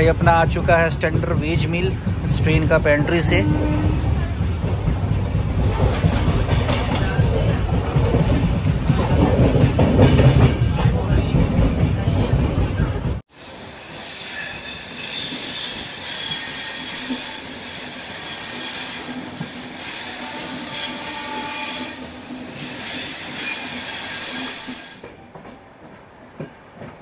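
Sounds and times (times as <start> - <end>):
train running rumble: 0.0 - 27.0
train wheels squealing on rails: 13.3 - 25.6.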